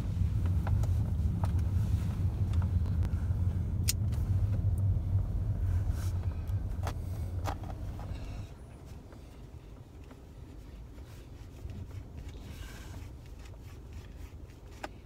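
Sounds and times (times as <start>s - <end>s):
car road rumble: 0.0s - 15.0s.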